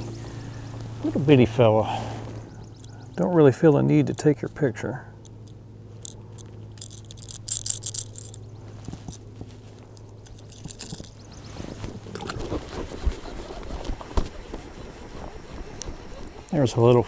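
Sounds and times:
steady low hum: 0.0s - 17.0s
fish handling crackling and clicks: 4.1s - 11.3s.

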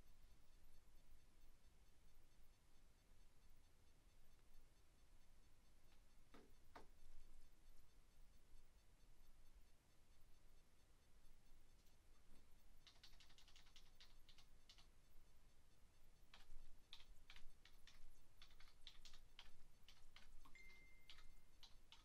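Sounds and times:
computer keyboard typing: 12.8s - 15.0s, 16.3s - 22.0s.

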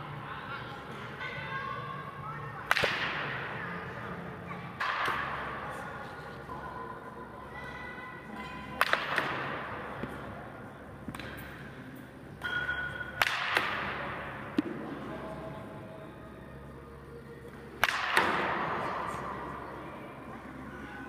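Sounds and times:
bat cracking a baseball: 17.8s - 18.6s.

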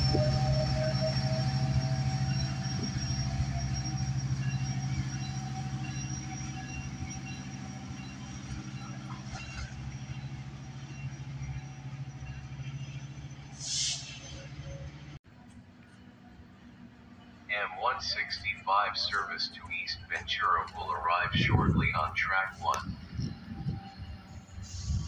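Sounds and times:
diesel locomotive humming: 0.0s - 25.0s
short hiss: 13.6s - 14.2s.

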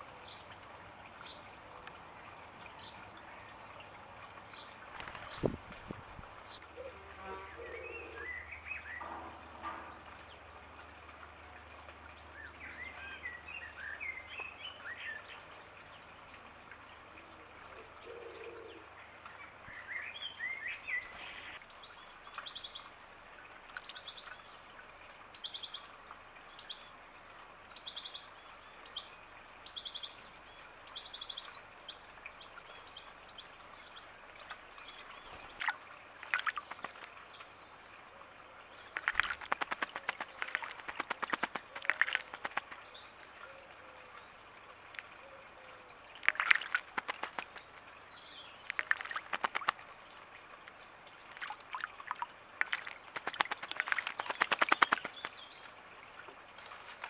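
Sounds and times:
bird splashing in water: 4.3s - 6.7s, 34.4s - 37.4s, 38.8s - 43.4s, 46.1s - 57.0s
birds warbling: 6.5s - 9.0s, 38.9s - 43.7s, 45.2s - 47.8s, 52.8s - 55.6s.

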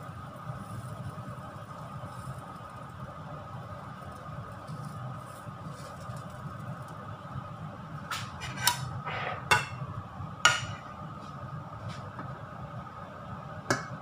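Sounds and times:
steady low hum: 0.0s - 14.0s
dishware clinking: 10.5s - 10.9s.

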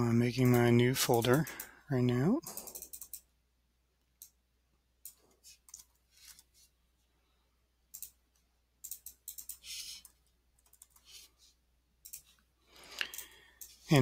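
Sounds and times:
keyboard and mouse clicks: 2.4s - 3.3s, 5.0s - 6.5s, 7.9s - 11.2s, 12.0s - 13.8s.

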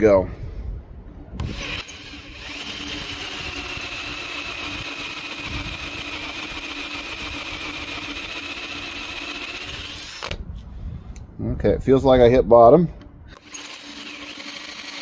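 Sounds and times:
electric drill boring metal: 1.4s - 10.4s, 13.4s - 15.0s.

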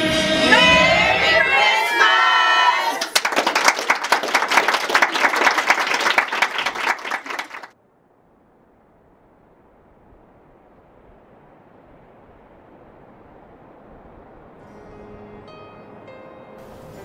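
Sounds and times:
group singing: 0.0s - 3.0s
people clapping and cheering: 0.4s - 7.8s.

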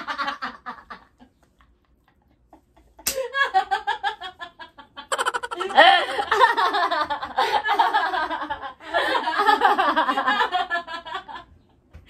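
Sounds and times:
young woman laughing: 2.8s - 11.4s.

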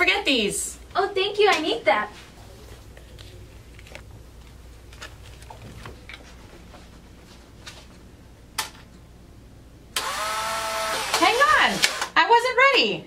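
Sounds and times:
low room hum: 0.0s - 13.0s
faint clicks and rustles: 0.8s - 9.0s.

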